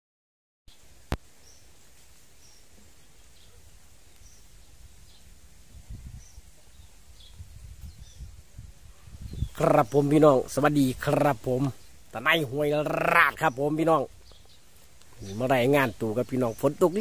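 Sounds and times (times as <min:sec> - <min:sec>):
small birds chirping: 0:00.7 - 0:17.0.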